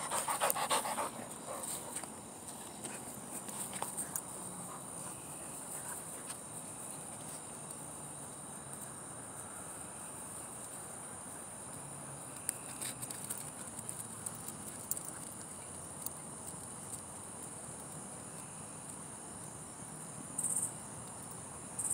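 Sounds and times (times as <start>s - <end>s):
night insects chirring: 14.1s - 21.9s.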